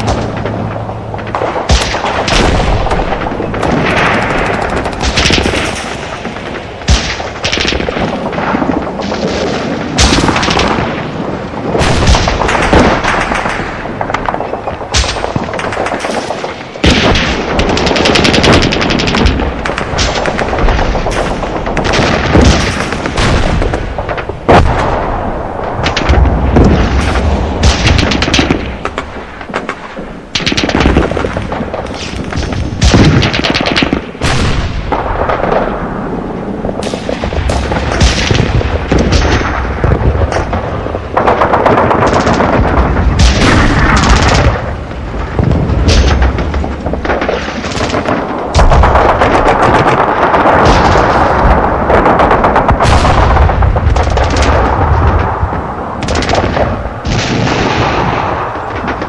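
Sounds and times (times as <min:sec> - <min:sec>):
low rumble: 0:00.0 - 0:59.0
machine-gun bursts: 0:15.1 - 0:21.2.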